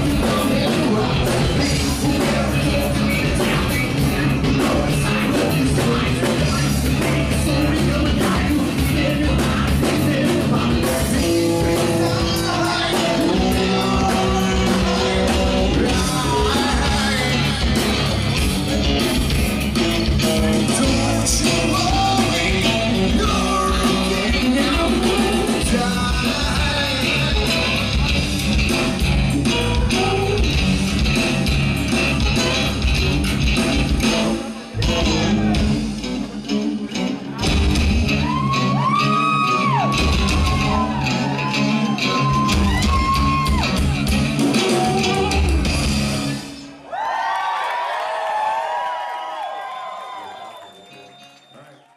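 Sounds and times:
person singing: 0:00.0 - 0:19.1, 0:19.8 - 0:30.8, 0:33.6 - 0:36.0, 0:36.9 - 0:46.8
bass guitar: 0:00.0 - 0:46.9
guitars: 0:00.0 - 0:46.9.

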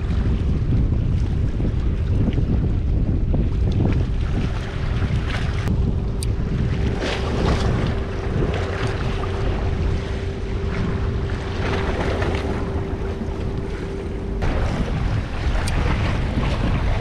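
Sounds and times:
steady low hum: 0:00.0 - 0:17.0
wind buffeting microphone: 0:00.0 - 0:17.0
sea water washing against rocks: 0:03.4 - 0:17.0.

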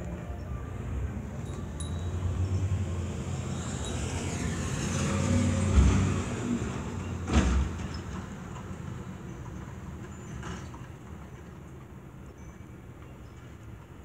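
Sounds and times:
truck driving past rumbling: 0:00.3 - 0:08.5.

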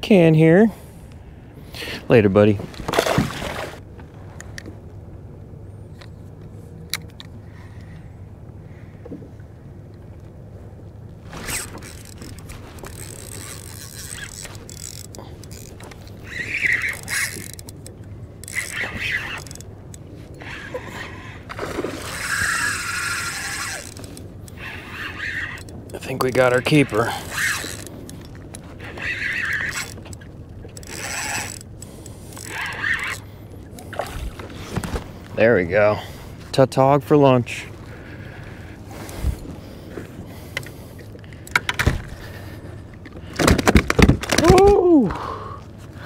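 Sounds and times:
fishing reel whirring and clicking: 0:11.3 - 0:21.2, 0:22.0 - 0:33.3.

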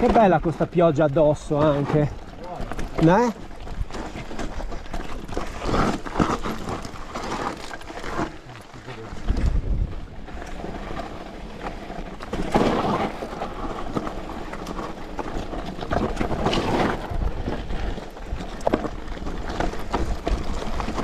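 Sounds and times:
bike rattling: 0:00.0 - 0:21.0
tyres crunching over stones: 0:00.0 - 0:21.0
wind buffeting microphone: 0:09.0 - 0:11.0.

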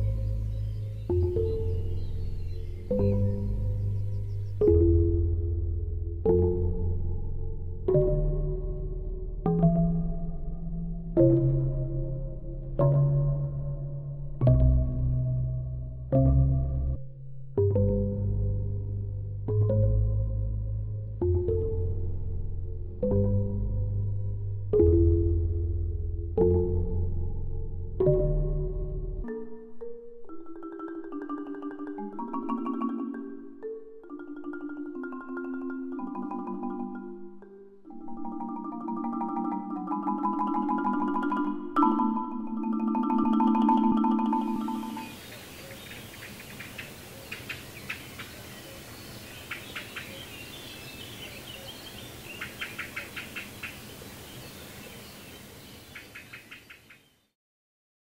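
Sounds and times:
steady outdoor hiss: 0:00.0 - 0:05.4, 0:30.2 - 0:57.3
mallet percussion music: 0:00.0 - 0:16.4, 0:26.4 - 0:46.0.

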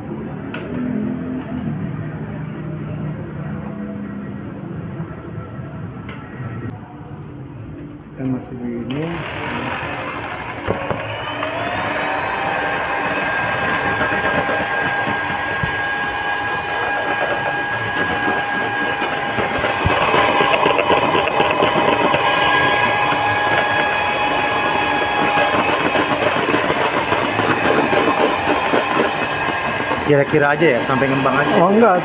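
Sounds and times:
hand mixer motor whining: 0:08.9 - 0:32.0.

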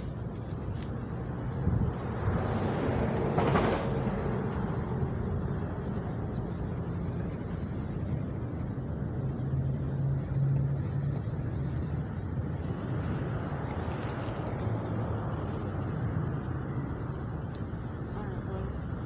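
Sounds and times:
engine hum: 0:00.0 - 0:19.0
traffic rumble: 0:00.0 - 0:19.0.

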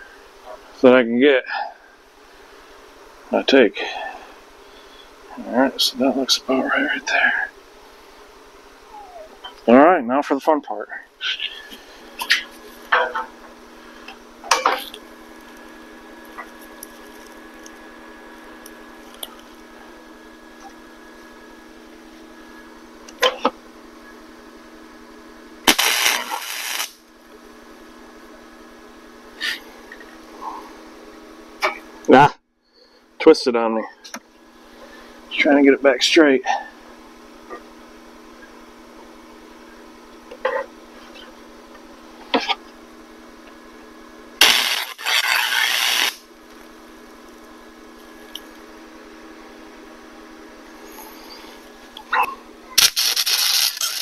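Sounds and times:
low steady hum: 0:00.0 - 0:54.0
welder arc crackling: 0:11.3 - 0:20.9, 0:25.6 - 0:27.3, 0:44.4 - 0:48.7, 0:52.8 - 0:54.0.

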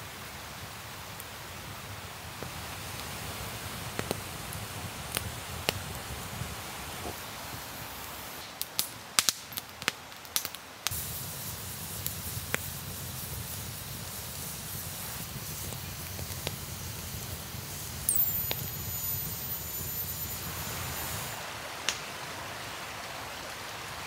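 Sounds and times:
outdoor hiss: 0:00.0 - 0:24.0
campfire crackling and popping: 0:02.4 - 0:07.2, 0:08.1 - 0:22.1.

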